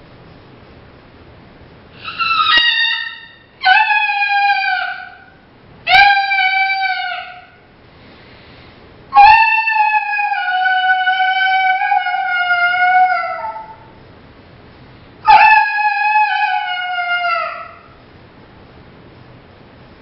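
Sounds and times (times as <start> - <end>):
coyote howler call: 2.0 - 7.7, 9.1 - 13.9, 15.2 - 18.0.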